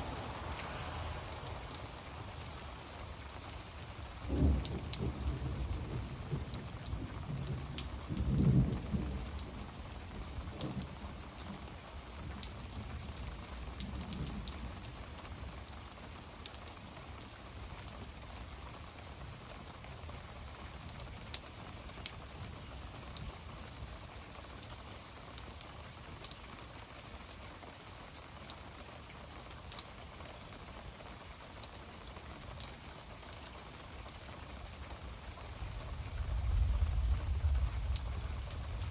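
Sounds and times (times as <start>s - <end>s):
steady rain: 0.0s - 38.9s
thunder rumble: 4.2s - 11.1s, 35.7s - 38.9s.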